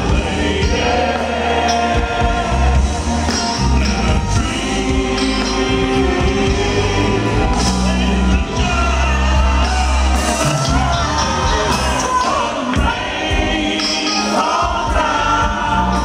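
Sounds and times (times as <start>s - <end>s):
backing singers: 0.0s - 16.0s
soul band playing: 0.0s - 16.0s
man singing lead vocal: 3.5s - 16.0s.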